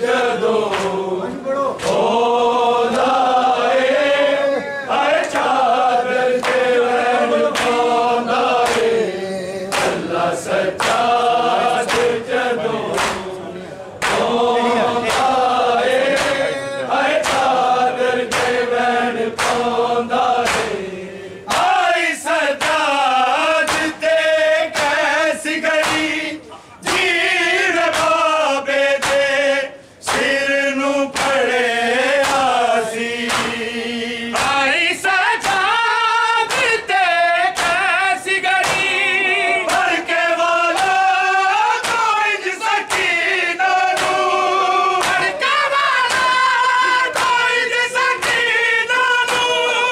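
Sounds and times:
men singing a lament in chorus: 0.0s - 49.9s
hands slapping chests: 0.6s - 1.0s, 1.8s - 2.1s, 5.2s - 5.6s, 6.4s - 9.1s, 9.7s - 10.1s, 10.7s - 13.4s, 14.0s - 16.5s, 17.1s - 19.8s, 20.4s - 20.8s, 21.5s - 21.8s, 22.6s - 23.0s, 23.6s - 24.1s, 24.7s - 25.1s, 25.8s - 26.2s, 26.8s - 27.2s, 27.8s - 28.2s, 29.0s - 29.3s, 30.1s - 30.4s, 31.1s - 31.5s, 32.2s - 32.6s, 33.2s - 33.7s, 34.3s - 34.7s, 35.4s - 35.7s, 36.4s - 36.9s, 37.5s - 37.8s, 38.6s - 39.0s, 39.6s - 40.1s, 40.7s - 41.1s, 41.7s - 42.2s, 42.8s - 43.2s, 43.8s - 47.6s, 48.2s - 48.6s, 49.2s - 49.6s.

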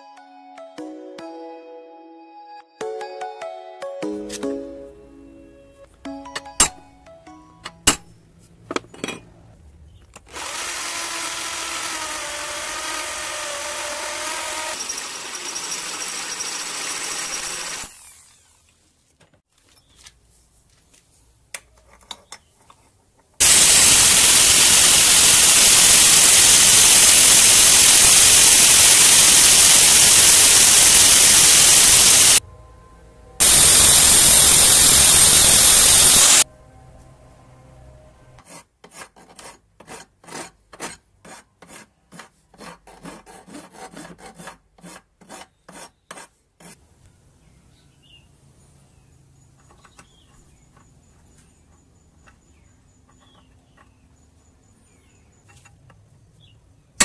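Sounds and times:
angle grinder cutting steel: 10.3s - 18.6s, 23.4s - 32.4s, 33.4s - 36.5s
hand file stroking metal: 38.4s - 46.8s.

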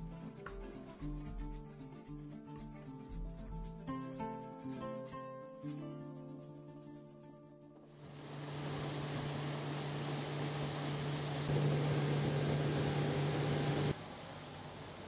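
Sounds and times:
motor humming: 8.0s - 14.0s.

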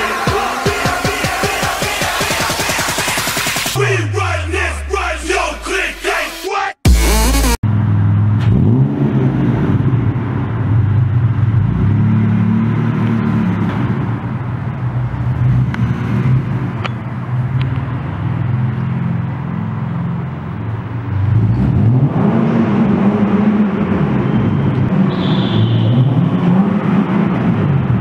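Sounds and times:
car engine revving: 6.8s - 28.0s.

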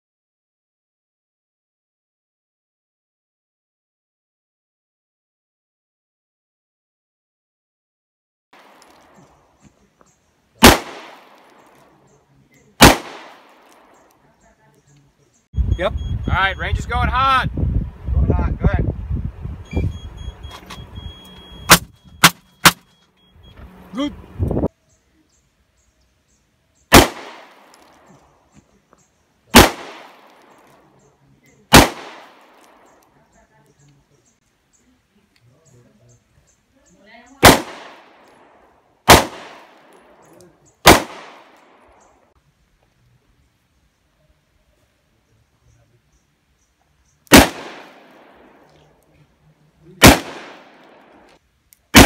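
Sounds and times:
gunshots with echoing tail: 10.6s - 11.6s, 12.8s - 13.9s, 26.9s - 28.0s, 29.5s - 30.6s, 31.7s - 32.9s, 37.4s - 40.2s, 40.8s - 41.9s, 47.3s - 48.6s, 50.0s - 51.3s.

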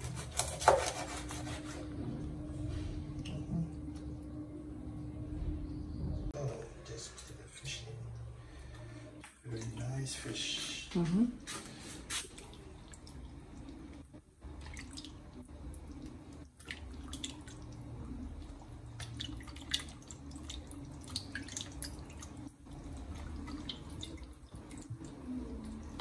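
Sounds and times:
low steady hum: 0.0s - 26.0s
liquid dripping and splashing: 11.4s - 26.0s.

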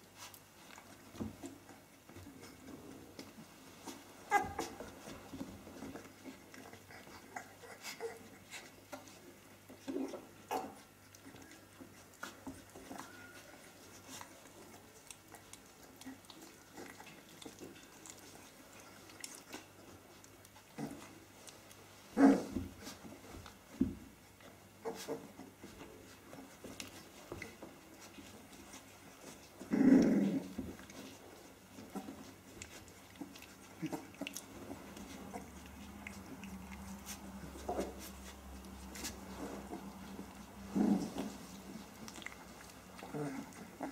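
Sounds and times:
puppy grunts and squeaks: 4.3s - 4.9s, 9.9s - 10.8s
paws scuffling on rug: 11.3s - 43.9s.

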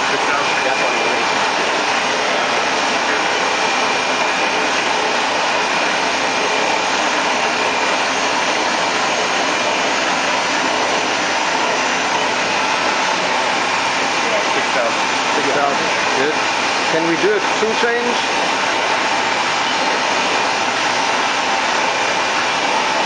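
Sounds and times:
machine whirring hiss: 0.0s - 23.0s.

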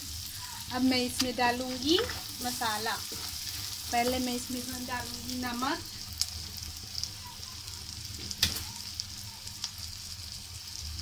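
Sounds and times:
onion and tomato sizzling in oil: 0.0s - 11.0s
wooden spoon stirring and scraping: 0.5s - 4.7s.

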